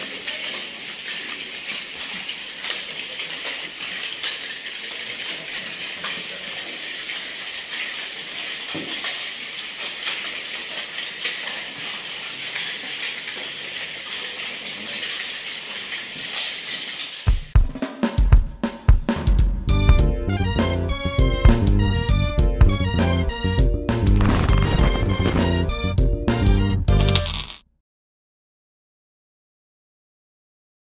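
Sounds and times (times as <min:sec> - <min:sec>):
music: 0:17.3 - 0:27.3
spoons clinking on plastic plates: 0:27.0 - 0:27.6.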